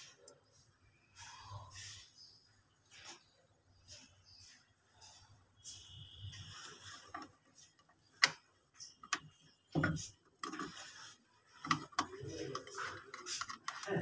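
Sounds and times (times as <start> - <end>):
rustling of wiring: 5.7 - 14.0.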